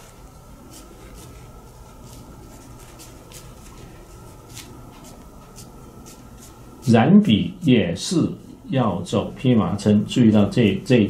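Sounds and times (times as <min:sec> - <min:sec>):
ink brush swishing on paper: 0:00.0 - 0:07.1.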